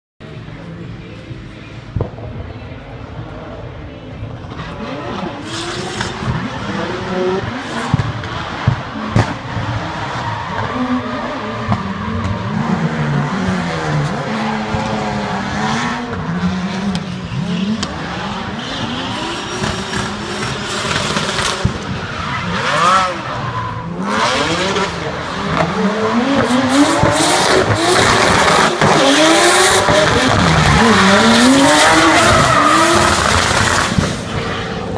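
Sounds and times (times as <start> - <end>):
car engines revving: 0.2 - 34.9
tyres screeching: 27.4 - 34.0.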